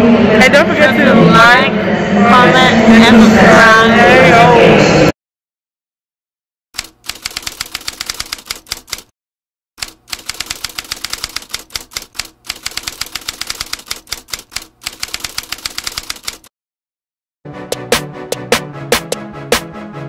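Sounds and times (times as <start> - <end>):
typewriter keystrokes clacking: 6.8 - 9.1, 9.8 - 16.5.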